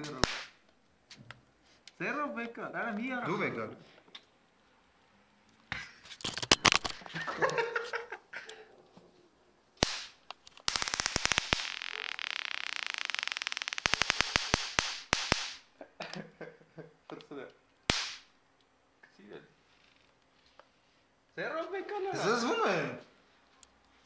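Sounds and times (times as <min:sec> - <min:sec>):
electric fly swatter zapping: 0:09.8 - 0:15.6, 0:17.9 - 0:18.3.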